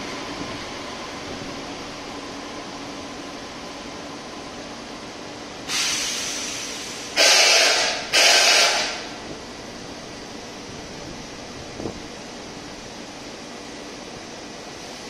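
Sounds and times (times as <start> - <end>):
compressed air hissing: 5.7 - 9.1.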